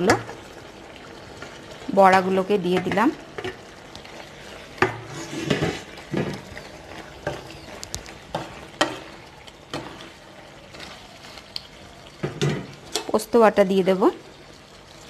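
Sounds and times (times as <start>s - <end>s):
pan sizzling: 0.0s - 15.0s
spatula stirring thick curry: 2.8s - 13.1s.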